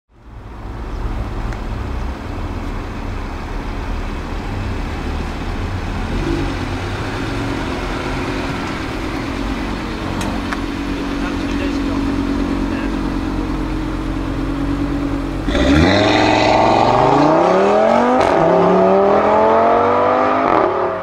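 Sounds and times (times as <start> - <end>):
car engine idling: 0.1 - 17.4.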